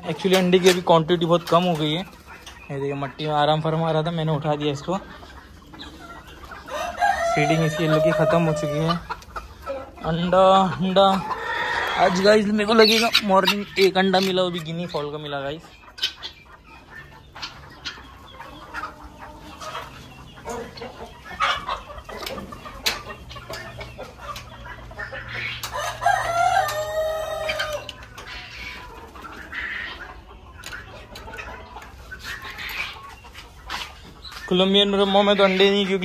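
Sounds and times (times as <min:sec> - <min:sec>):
chickens clucking: 0:00.0 - 0:36.0
rooster crowing: 0:06.7 - 0:08.8, 0:25.7 - 0:27.9.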